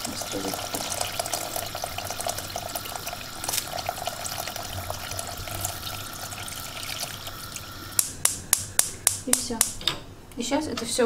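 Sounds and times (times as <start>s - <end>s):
water pouring into pot: 0.0s - 8.2s.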